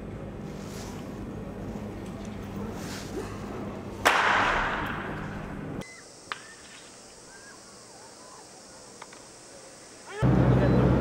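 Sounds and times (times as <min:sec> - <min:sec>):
faint bird chirps: 0:05.8 - 0:10.2
crowd noise: 0:07.4 - 0:11.0.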